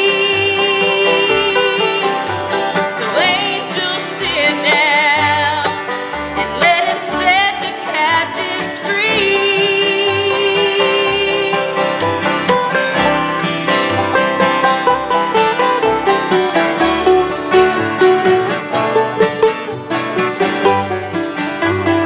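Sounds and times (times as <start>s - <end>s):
woman singing with vibrato: 0.0s - 5.7s, 6.4s - 11.8s
acoustic guitar: 0.0s - 22.0s
banjo: 0.0s - 22.0s
mandolin: 0.0s - 22.0s
upright bass: 0.0s - 22.0s.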